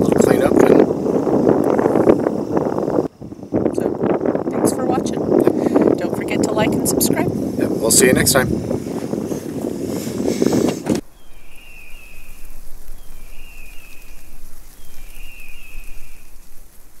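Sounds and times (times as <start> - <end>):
outdoor ambience: 0.0 - 17.0
wind buffeting microphone: 0.0 - 17.0
bird whistling: 11.1 - 16.4.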